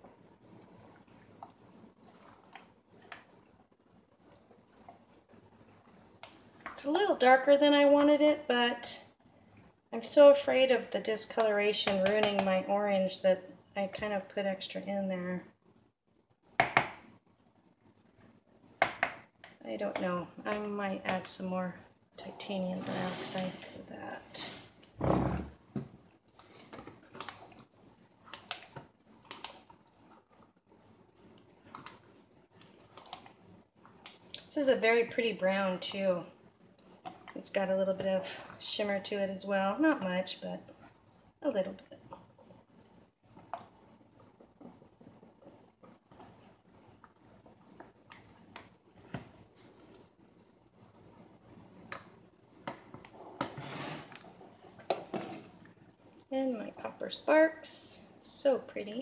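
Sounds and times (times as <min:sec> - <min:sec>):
spatula scraping metal cup: 0:22.5 - 0:24.6.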